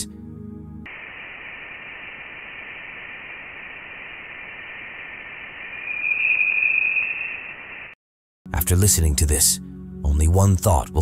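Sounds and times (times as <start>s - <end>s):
steady hiss: 0.9s - 8.0s
whistling tone: 5.8s - 7.5s.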